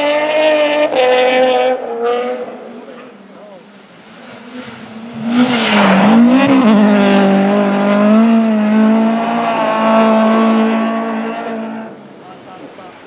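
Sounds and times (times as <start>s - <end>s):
rally car engine at high revs: 0.0s - 12.6s
tyre and snow rushing noise: 4.0s - 11.1s.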